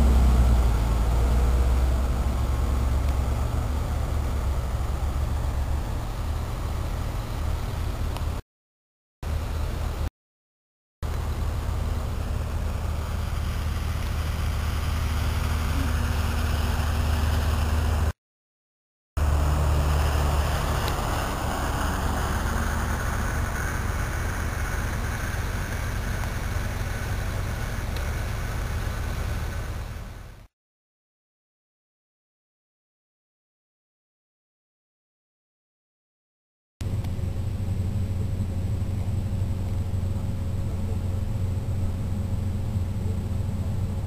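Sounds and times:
tractor engines droning: 0:00.0 - 0:08.4, 0:09.2 - 0:10.1, 0:11.0 - 0:18.2, 0:19.2 - 0:30.5, 0:36.8 - 0:44.0.

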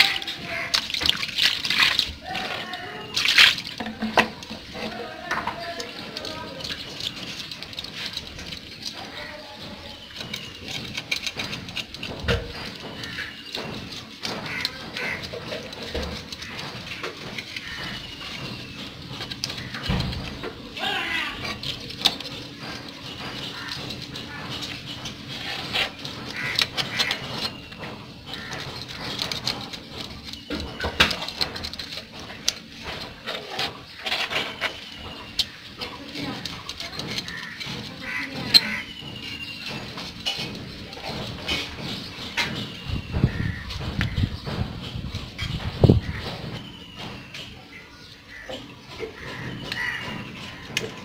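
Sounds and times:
knife scraping fish scales: 0:00.0 - 0:20.4
knife scraping fish: 0:00.0 - 0:44.1
blade knocking on concrete: 0:00.0 - 0:51.0.

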